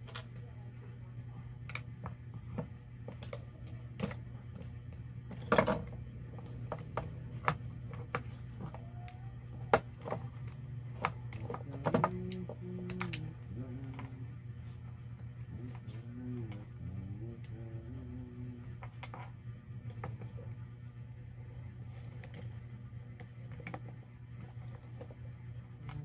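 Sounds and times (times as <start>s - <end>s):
steady low hum: 0.0s - 26.0s
plastic parts clicking and knocking: 5.3s - 14.1s.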